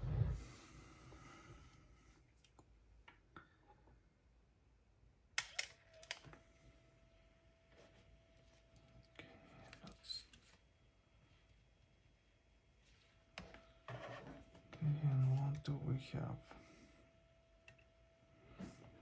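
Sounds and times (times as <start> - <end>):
faint steady tone: 5.8 - 19.0.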